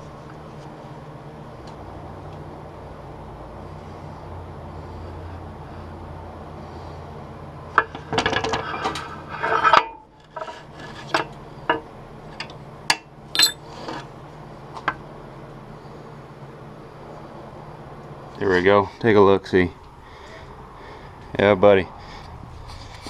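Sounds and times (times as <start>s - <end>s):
metal clattering and clinking: 13.4s - 13.6s.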